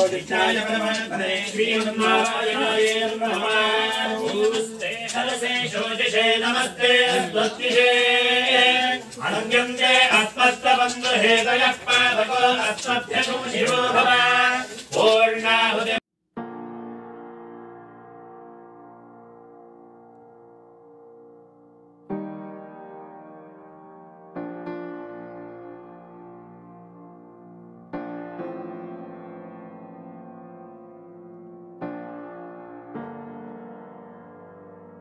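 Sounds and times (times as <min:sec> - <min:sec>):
men chanting: 0:00.0 - 0:16.0.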